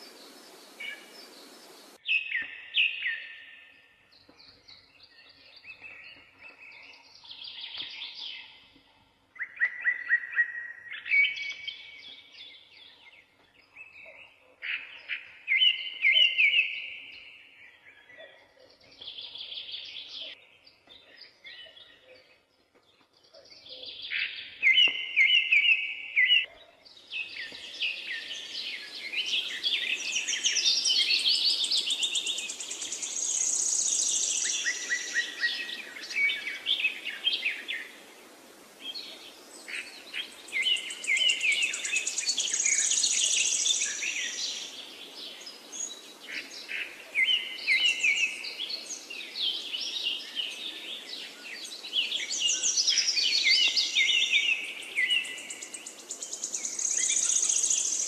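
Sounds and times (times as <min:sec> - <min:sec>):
faint steady hiss: 0:00.0 - 0:02.0, 0:26.9 - 0:58.0
birds chirping and trilling: 0:00.0 - 0:58.0.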